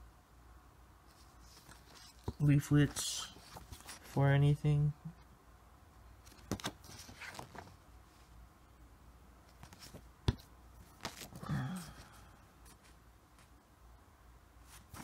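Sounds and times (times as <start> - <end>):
paper leaflets rustling: 1.1 - 4.2, 6.2 - 7.8, 10.8 - 13.5.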